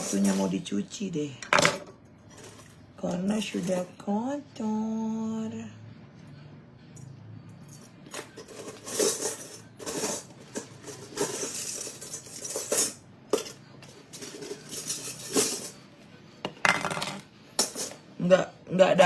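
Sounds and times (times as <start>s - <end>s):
jewellery clinking: 7.0s - 15.9s.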